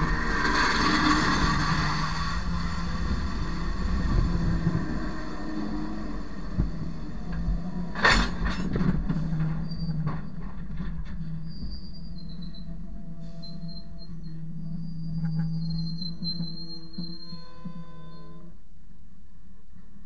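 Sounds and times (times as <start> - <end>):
train wheels clattering: 0.0 - 11.9
high wheel squeal: 0.0 - 18.6
train low rumble: 0.0 - 20.0.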